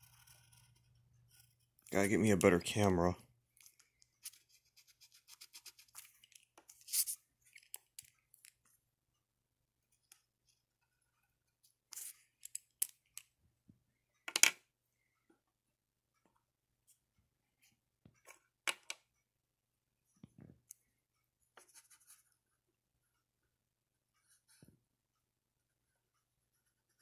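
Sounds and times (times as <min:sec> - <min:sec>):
marker scribbling on paper: 0:04.2 - 0:06.1, 0:06.7 - 0:07.2, 0:21.6 - 0:22.3.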